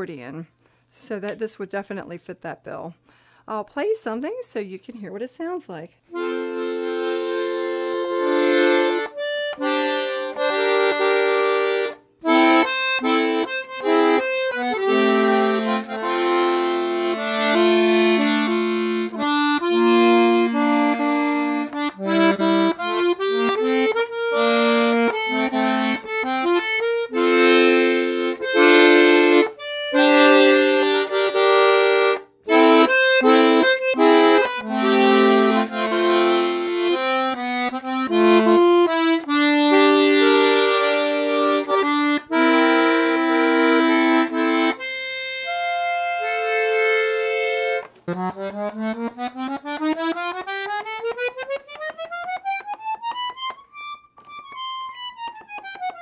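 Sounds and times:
accordion tune: 6.1s - 56.0s.

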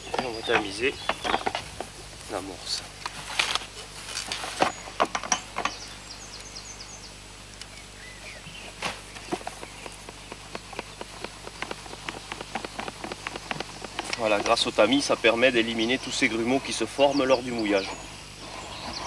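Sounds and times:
plastic bucket knocking and scraping: 0.0s - 1.9s, 8.8s - 15.2s.

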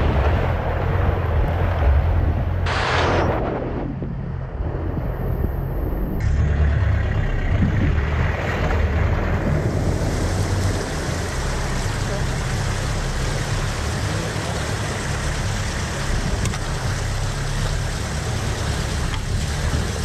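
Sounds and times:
vehicle driving through muddy water: 0.0s - 3.4s, 6.2s - 20.0s
wind noise on microphone: 0.0s - 6.2s, 7.4s - 8.4s, 15.8s - 17.1s, 18.4s - 20.0s
vehicle engine running at low speed: 0.0s - 20.0s.

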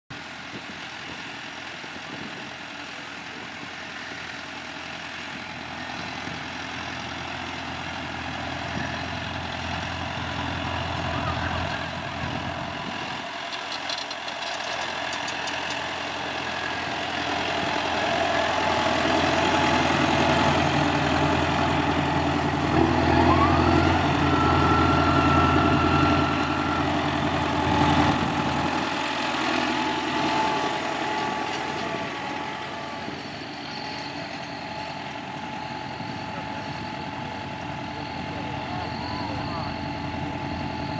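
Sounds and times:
tractor diesel engine under load: 0.1s - 40.9s
high whine: 29.9s - 40.9s.

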